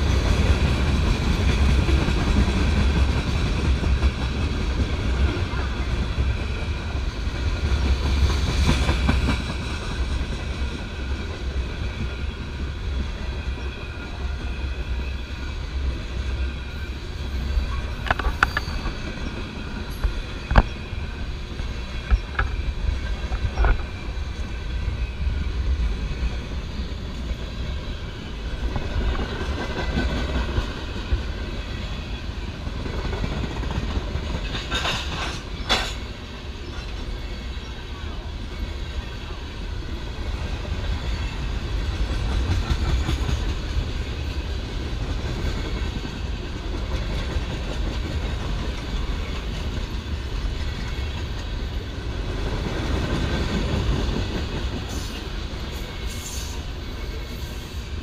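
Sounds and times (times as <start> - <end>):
sharp train clanks: 0.0 - 58.0
train wheels rumbling on rail: 0.0 - 58.0.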